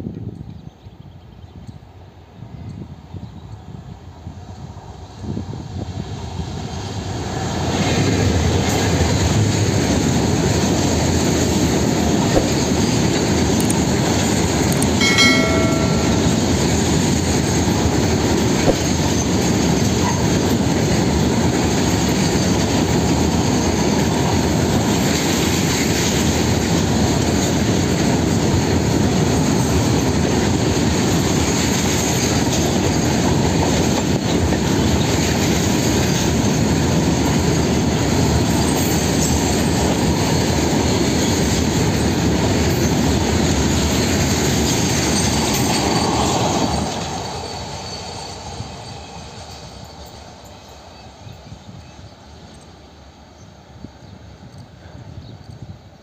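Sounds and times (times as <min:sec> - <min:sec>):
steel wheels rumbling on rail: 0:03.6 - 0:52.6
high wheel squeal: 0:45.1 - 0:50.2.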